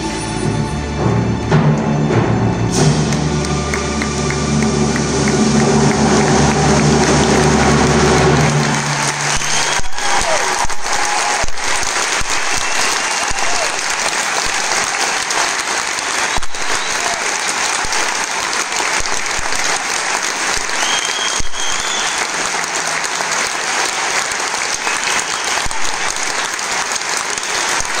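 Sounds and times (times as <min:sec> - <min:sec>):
audience applauding: 0:02.7 - 0:28.0.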